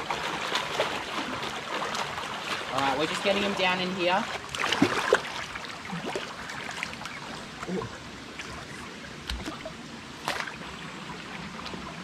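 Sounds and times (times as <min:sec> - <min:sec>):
creek water wash: 0:00.0 - 0:12.0
water splashing and sloshing: 0:00.0 - 0:12.0.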